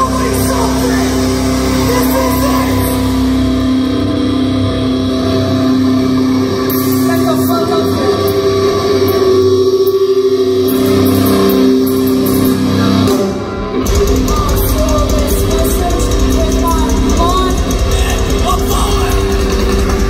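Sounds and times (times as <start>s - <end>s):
live metal band playing: 0.0s - 20.0s
ringing guitar chords: 0.0s - 20.0s
person singing: 5.3s - 19.9s
pounding drums and bass: 10.8s - 20.0s.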